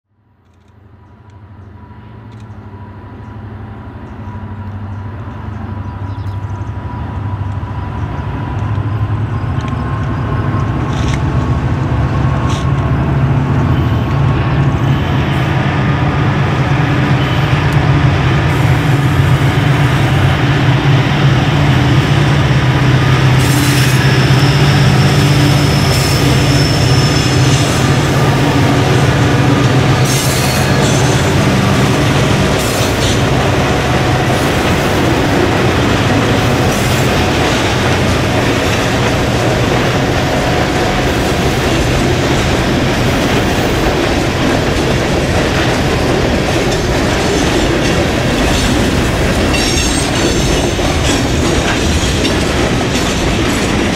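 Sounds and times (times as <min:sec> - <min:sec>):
wheels clicking on track: 0:04.0 - 0:13.0, 0:24.9 - 0:53.9.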